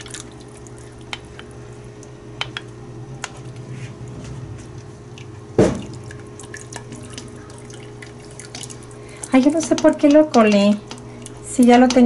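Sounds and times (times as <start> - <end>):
soft drips and ticks: 0.0 - 2.7, 5.9 - 12.0
low steady hum: 0.0 - 12.0.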